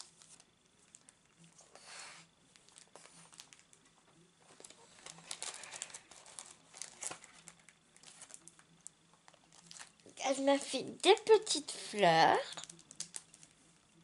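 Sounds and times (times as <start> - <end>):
plastic packaging crinkling: 2.5 - 3.8, 4.5 - 10.1, 12.4 - 13.6.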